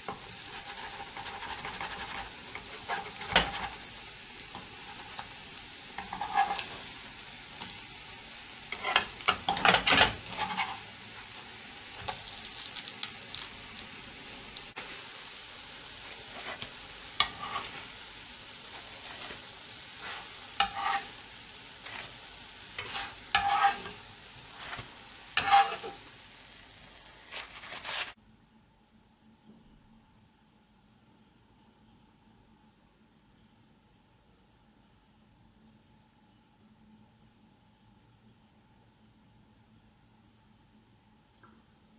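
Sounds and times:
spatula scraping and clacking pan: 0:00.0 - 0:07.0, 0:08.7 - 0:10.9, 0:16.1 - 0:18.0, 0:18.7 - 0:21.2, 0:21.8 - 0:26.1, 0:27.2 - 0:28.2
pancakes sizzling in oil: 0:00.0 - 0:28.2.

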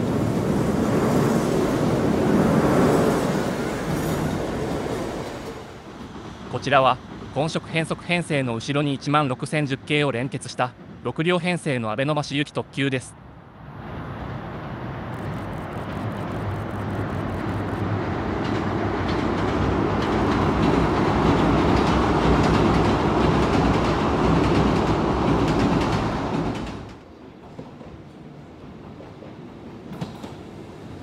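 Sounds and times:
train wheel and track noise: 0:00.0 - 0:31.0
train wheels clicking: 0:18.4 - 0:31.0.

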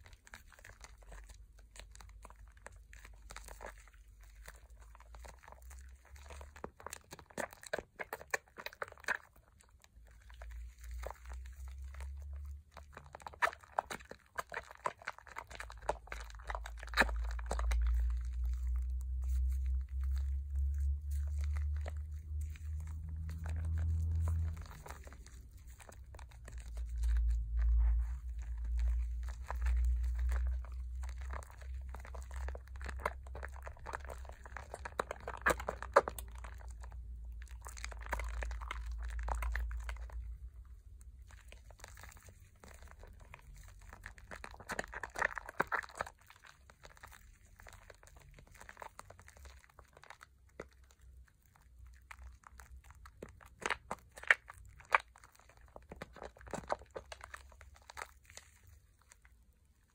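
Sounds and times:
wet soap foam squishing: 0:00.0 - 0:59.9
low rumble: 0:16.4 - 0:45.5.

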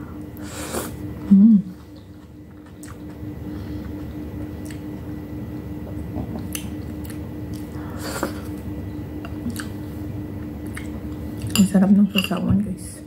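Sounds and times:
steady low hum: 0:00.0 - 0:13.0
person chewing: 0:01.8 - 0:05.0, 0:05.6 - 0:11.5.

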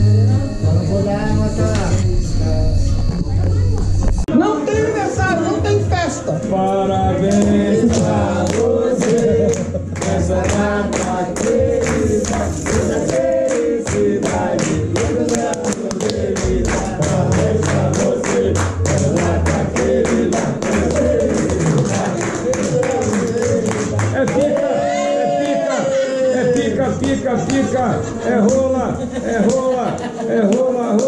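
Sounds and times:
group of people singing: 0:04.3 - 0:31.0
rhythmic hand clapping: 0:07.2 - 0:31.0.

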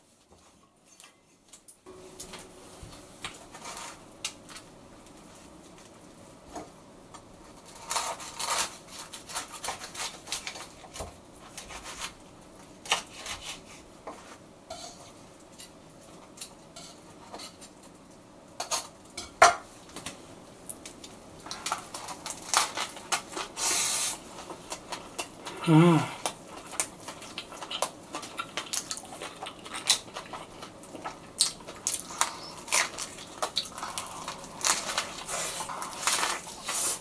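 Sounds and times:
knife crunching through bread crust: 0:07.6 - 0:12.2, 0:26.7 - 0:37.0.

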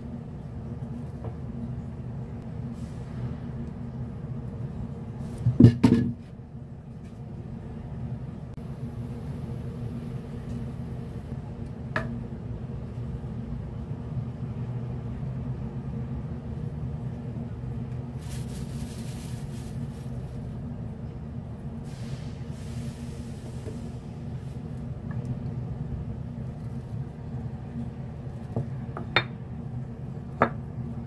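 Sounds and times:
low mechanical hum: 0:00.0 - 0:31.0
hissing rustle: 0:18.2 - 0:20.5.

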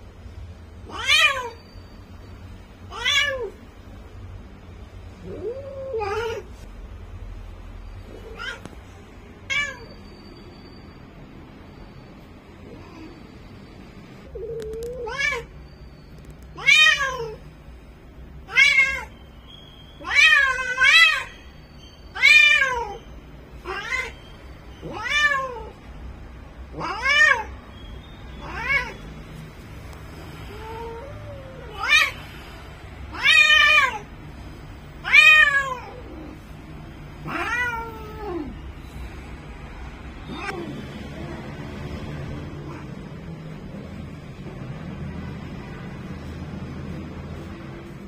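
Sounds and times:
cat meowing loudly: 0:00.8 - 0:01.8, 0:02.9 - 0:03.6, 0:05.2 - 0:06.5, 0:08.1 - 0:08.8, 0:09.4 - 0:10.1, 0:14.3 - 0:15.6, 0:16.5 - 0:17.4, 0:18.5 - 0:19.2, 0:20.0 - 0:21.5, 0:22.1 - 0:25.8, 0:26.7 - 0:27.6, 0:28.4 - 0:29.0, 0:30.5 - 0:32.3, 0:33.1 - 0:34.1, 0:35.0 - 0:36.4, 0:37.2 - 0:38.6.

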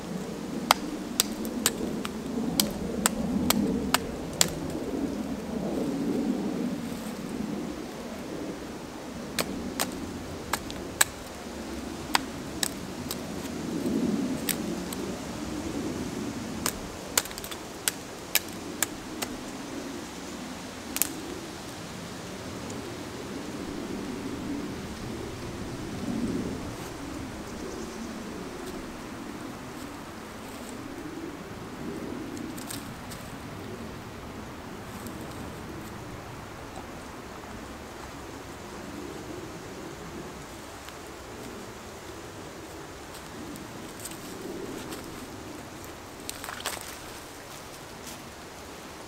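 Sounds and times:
low steady rustling: 0:00.0 - 0:49.0
steady hiss: 0:00.0 - 0:49.0
dry wood snapping: 0:00.6 - 0:04.9, 0:09.3 - 0:15.1, 0:16.6 - 0:19.4, 0:21.0 - 0:21.2, 0:32.4 - 0:33.3, 0:43.1 - 0:48.2.

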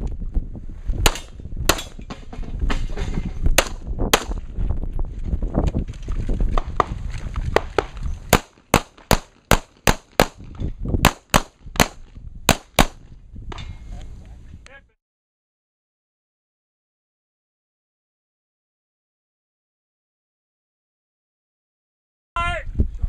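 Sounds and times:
wind rumble: 0:00.0 - 0:14.9, 0:22.4 - 0:23.0
pistol shots: 0:01.0 - 0:02.0, 0:03.6 - 0:04.4, 0:07.8 - 0:10.4, 0:11.0 - 0:13.0
running footsteps: 0:04.4 - 0:08.3.

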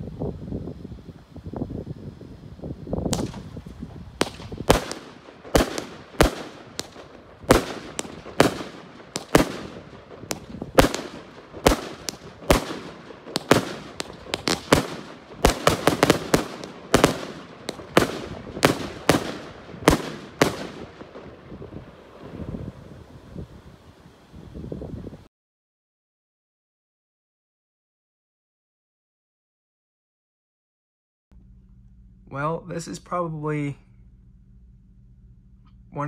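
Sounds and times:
firework salute bangs: 0:02.8 - 0:23.9.

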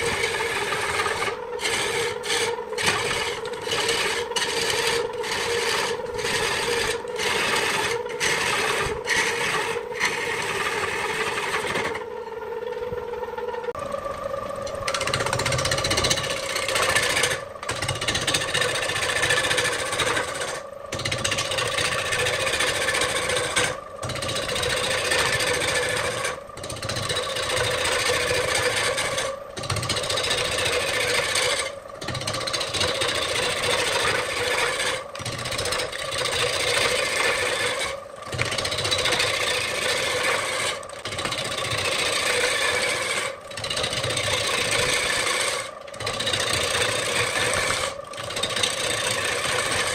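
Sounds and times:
wood lathe cutting wood: 0:00.0 - 0:12.4, 0:13.8 - 0:49.9.

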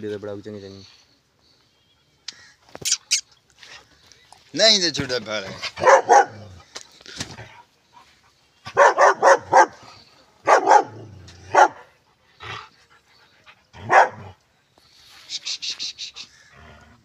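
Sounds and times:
dog barking: 0:05.8 - 0:06.4, 0:08.7 - 0:09.8, 0:10.4 - 0:11.9, 0:13.8 - 0:14.3.

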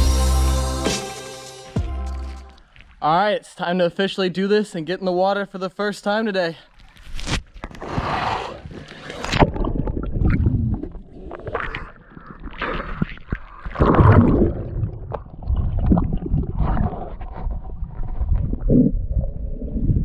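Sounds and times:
water sloshing and splashing: 0:08.7 - 0:18.5.

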